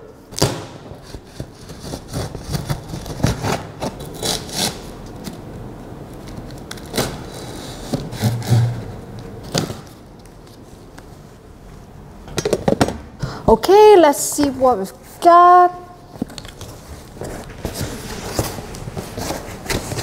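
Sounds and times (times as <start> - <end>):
packing tape cut and peeled: 0.4 - 5.5, 6.1 - 10.6.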